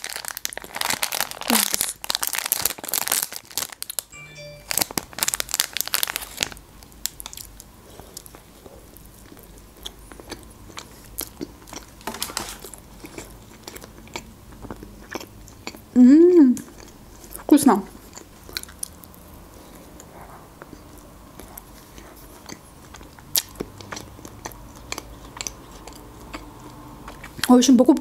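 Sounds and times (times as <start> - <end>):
plastic wrapper crinkling and tearing: 0.0 - 4.1, 4.7 - 7.6, 12.0 - 12.8
biting and chewing: 5.4 - 15.9, 16.6 - 27.6.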